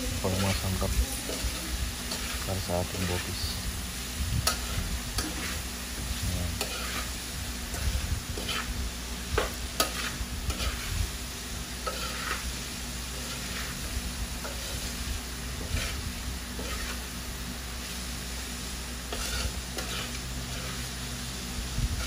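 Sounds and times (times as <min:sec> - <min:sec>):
low sizzle: 0:00.0 - 0:22.0
spatula scraping metal pan: 0:00.2 - 0:03.5, 0:04.4 - 0:05.6, 0:06.5 - 0:08.8, 0:09.4 - 0:11.0, 0:11.8 - 0:17.1, 0:19.1 - 0:21.0.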